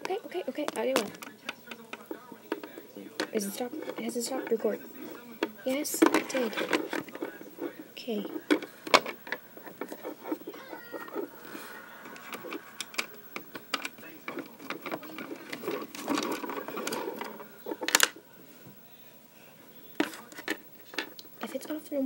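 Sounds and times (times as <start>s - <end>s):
handling clicks and taps: 0.0s - 11.3s, 12.1s - 18.2s
rustling of stuffed toys: 0.0s - 19.4s.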